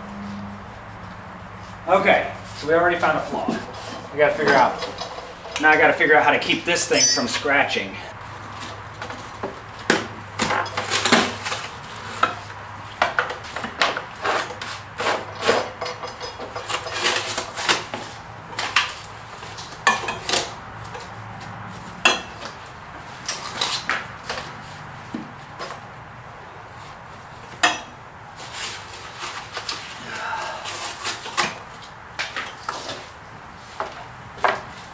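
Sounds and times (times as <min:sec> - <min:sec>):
metal bar clanking and scraping: 0:06.9 - 0:07.4.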